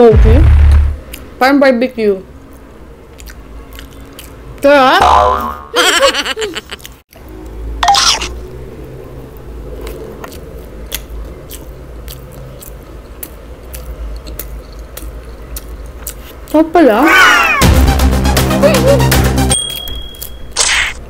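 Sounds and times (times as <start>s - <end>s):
close chewing with wet mouth clicks: 2.5s - 4.6s, 9.3s - 16.6s.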